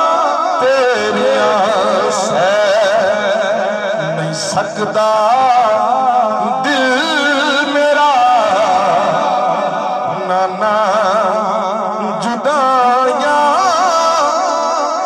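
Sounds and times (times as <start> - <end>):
man singing into a microphone: 0.0 - 15.0.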